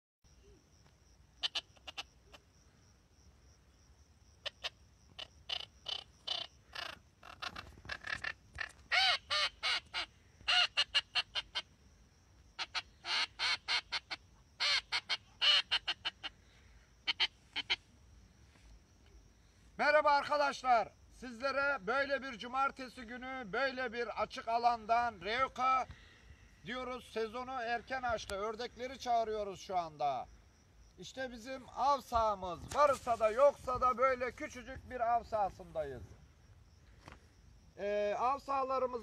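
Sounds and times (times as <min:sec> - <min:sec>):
duck call quacks: 0:17.1 - 0:17.8.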